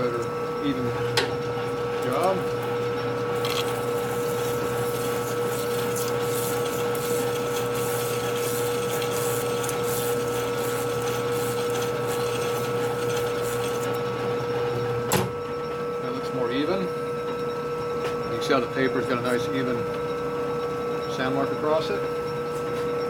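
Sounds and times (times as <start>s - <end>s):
metal lathe whining: 0.0s - 23.0s
emery paper scratching metal: 3.4s - 14.0s.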